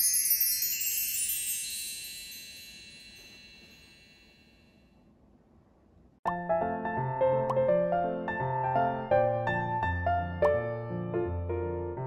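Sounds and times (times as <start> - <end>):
bell-like chimes ringing: 0.0 - 4.9.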